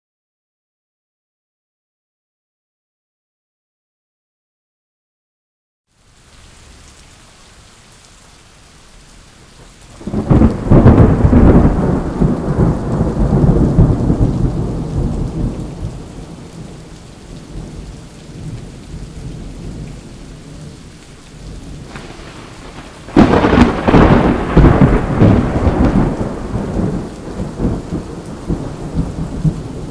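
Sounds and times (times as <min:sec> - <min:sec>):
steady rain: 0:05.9 - 0:29.9
thunder claps rumbling: 0:10.0 - 0:20.8, 0:21.4 - 0:29.9.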